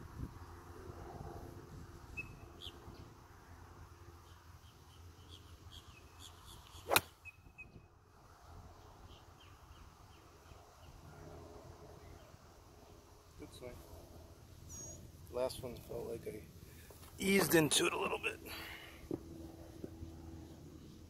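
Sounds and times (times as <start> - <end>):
golf club striking ball: 6.9 - 7.1
faint high chirping: 14.7 - 15.1.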